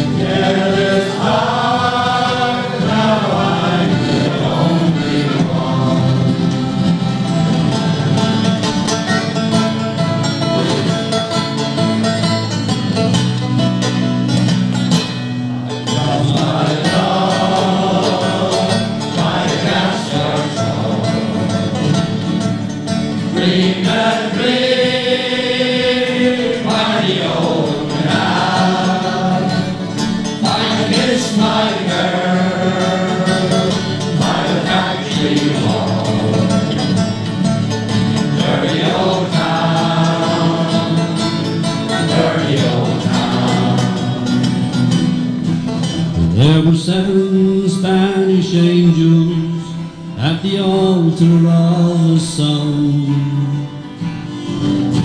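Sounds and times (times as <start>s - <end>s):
men singing in chorus: 0.0s - 7.0s, 15.9s - 22.1s, 23.2s - 37.0s, 38.3s - 44.5s
acoustic guitars strumming: 0.0s - 55.0s.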